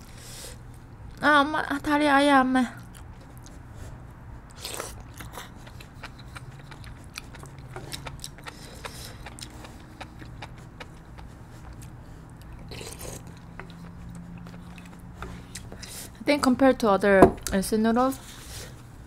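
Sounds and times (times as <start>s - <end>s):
wet chewing clicks: 4.5s - 16.0s
slurping noodles: 4.5s - 16.1s.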